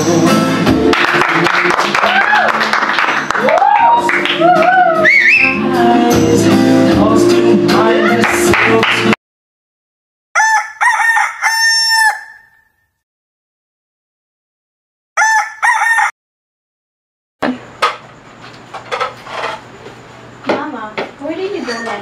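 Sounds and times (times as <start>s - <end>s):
rooster crowing: 10.4s - 12.8s, 15.2s - 16.2s.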